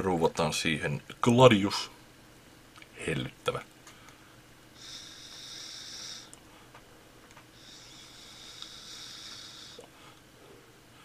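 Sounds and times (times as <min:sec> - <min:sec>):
e-cigarette puff hiss: 0:04.8 - 0:06.4, 0:07.5 - 0:10.0.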